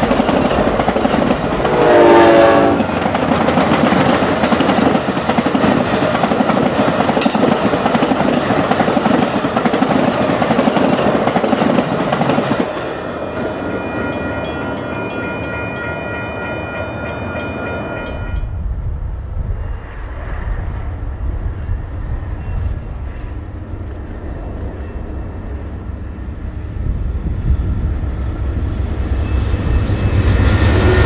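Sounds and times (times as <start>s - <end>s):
distant train rumble: 0.0s - 31.0s
train wheels rushing on rails: 0.0s - 31.0s
high ringing tones: 12.8s - 18.7s.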